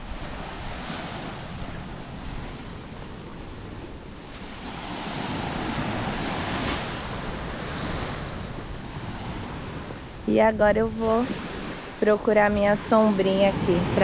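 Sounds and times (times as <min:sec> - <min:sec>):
small sea waves breaking on beach: 0:00.0 - 0:10.3, 0:11.0 - 0:14.0
wind rumbling on microphone: 0:00.0 - 0:14.0.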